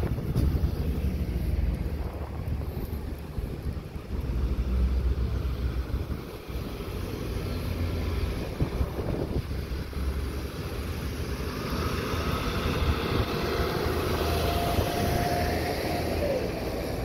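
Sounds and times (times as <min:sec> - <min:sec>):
vehicle engines and tyres rumbling: 0:00.0 - 0:17.0
wind buffeting microphone: 0:00.0 - 0:17.0.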